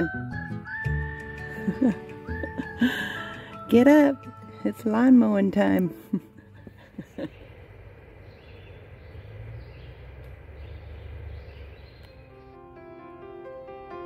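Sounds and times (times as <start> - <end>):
piano music: 0.0 - 6.9, 12.0 - 14.0
low engine hum: 0.6 - 13.8
faint bird chirps: 7.2 - 12.6.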